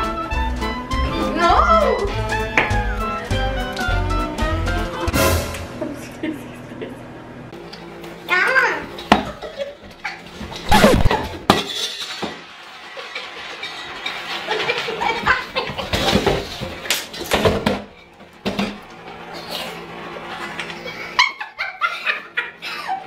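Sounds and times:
women laughing and shrieking: 20.8s - 23.0s.

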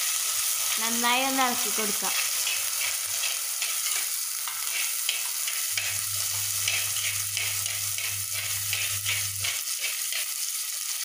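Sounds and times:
food sizzling in hot oil: 0.0s - 11.0s
steel spoon scraping: 2.1s - 10.5s.

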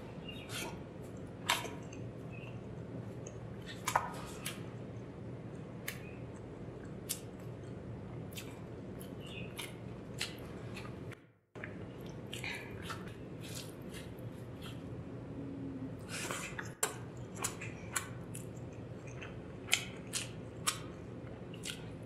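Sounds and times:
steady low hum: 0.0s - 22.0s
close chewing: 5.5s - 15.1s, 16.0s - 22.0s
wet mouth clicks: 5.8s - 11.0s.

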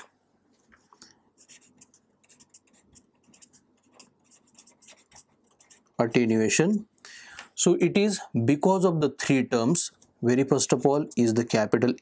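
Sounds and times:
marker pen scratching: 1.4s - 6.5s.

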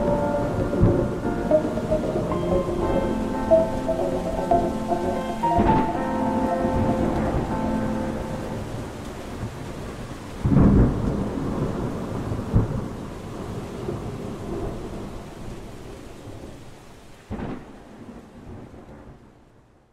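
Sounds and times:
thunderclaps: 0.0s - 15.1s
steady rain: 0.0s - 19.9s.

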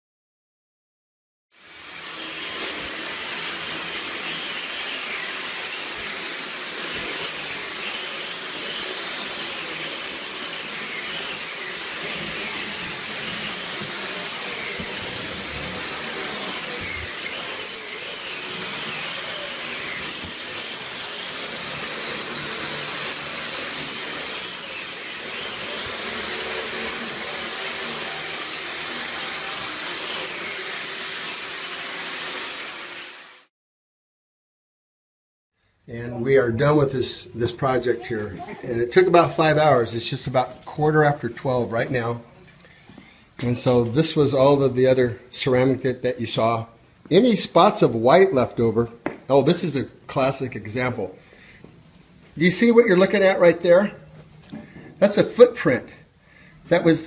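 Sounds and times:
grinder on concrete: 1.6s - 33.5s.

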